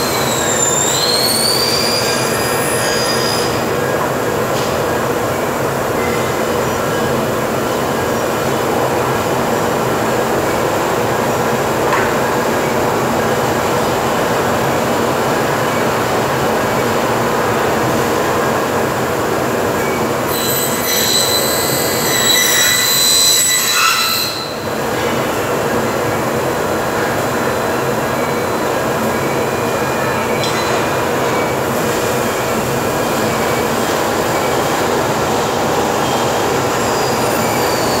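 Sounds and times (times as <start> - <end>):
metallic screech of cutting: 20.3 - 24.6.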